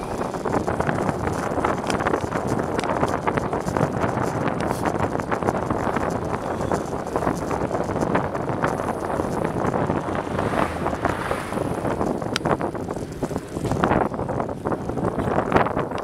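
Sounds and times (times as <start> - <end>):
small rattling clicks: 0.0 - 10.2
tyre and road rumble: 0.0 - 16.0
wind buffeting microphone: 0.0 - 16.0.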